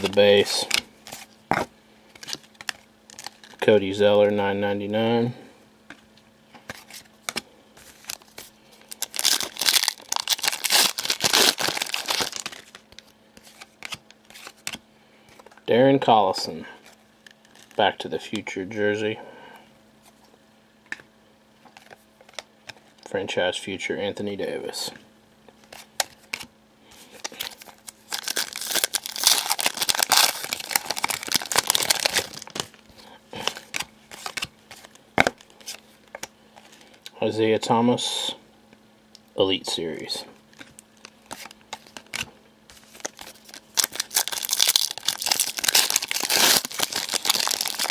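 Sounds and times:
cards crinkling and rustling: 0.0s - 3.8s, 5.9s - 15.6s, 16.8s - 18.4s, 21.6s - 23.1s, 25.5s - 37.0s, 40.5s - 47.9s.

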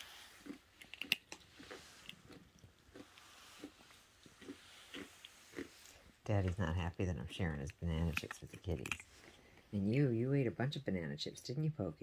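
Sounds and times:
kitten crunching chips: 0.0s - 9.5s.

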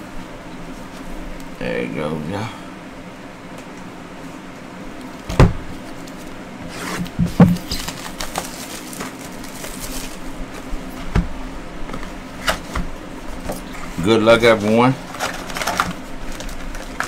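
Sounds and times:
cardboard box scraping and rustling: 6.6s - 10.3s.

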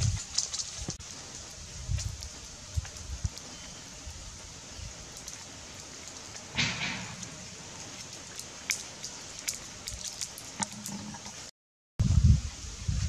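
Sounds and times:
dry leaves rustling: 0.0s - 11.2s
crunchy fruit crackles: 0.0s - 11.5s
steady hiss: 0.0s - 13.0s.

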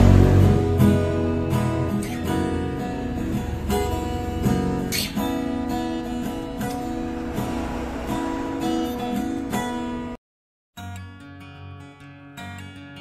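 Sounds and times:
acoustic guitar fingerpicking: 0.0s - 10.2s, 10.8s - 13.0s
guitar strum: 0.0s - 10.2s.

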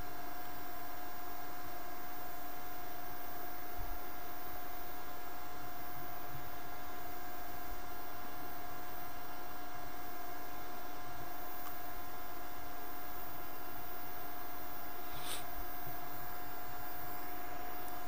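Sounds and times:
electrical hum with whine: 0.0s - 18.0s.

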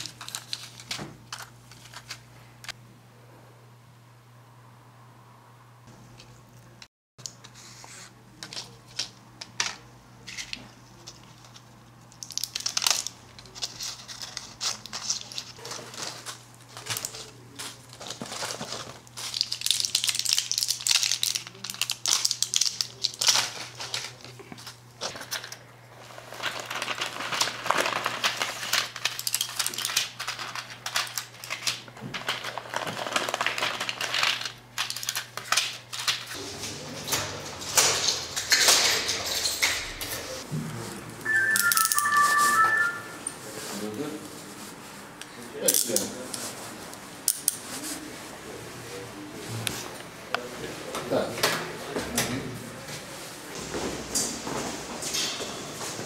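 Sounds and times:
packaging crinkling and rustling: 0.0s - 2.3s, 11.0s - 36.4s.

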